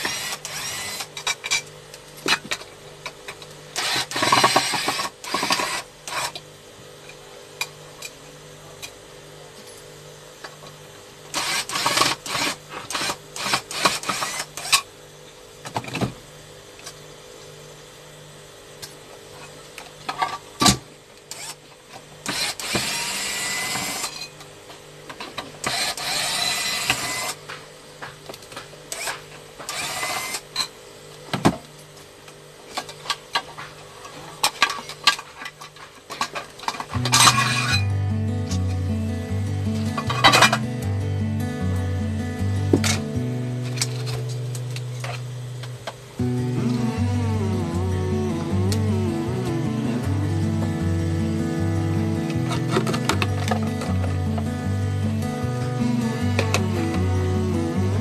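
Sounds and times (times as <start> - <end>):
electric screwdriver whirring: 0.0 - 1.1, 3.8 - 6.2, 11.4 - 14.7, 21.3 - 21.6, 22.3 - 24.1, 25.7 - 27.4, 29.7 - 30.4.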